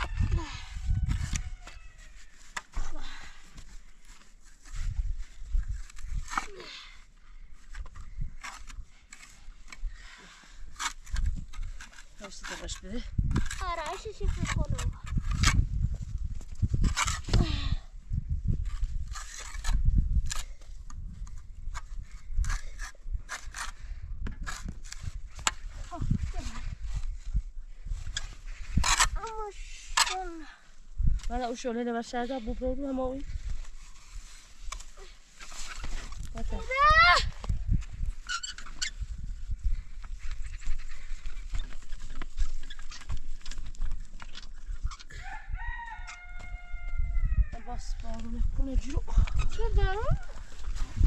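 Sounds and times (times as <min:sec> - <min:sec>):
rooster crowing: 0:45.2 - 0:47.6.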